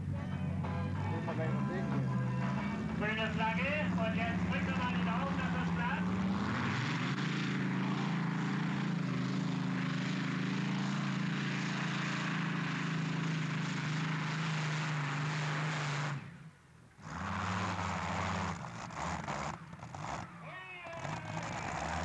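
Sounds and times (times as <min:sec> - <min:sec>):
aero engine at full power: 0:00.0 - 0:22.0.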